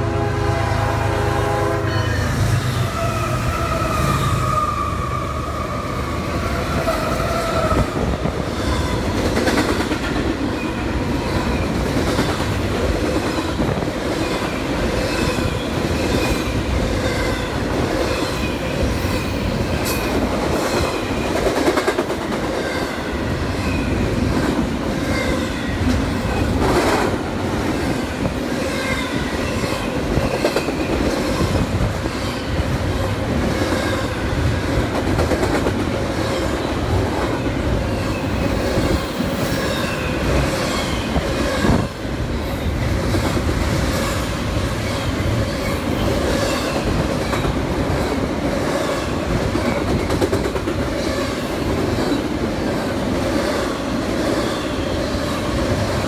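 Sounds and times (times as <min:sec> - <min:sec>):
locomotive air horn: 0:00.0 - 0:05.3
train rumble and clickety-clack: 0:00.0 - 0:56.0
train wheel squeal: 0:01.9 - 0:09.0, 0:37.4 - 0:41.9.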